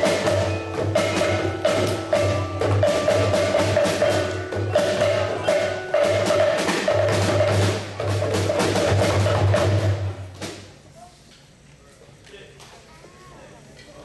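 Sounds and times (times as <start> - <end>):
djembes and drum kit playing: 0.0 - 10.9.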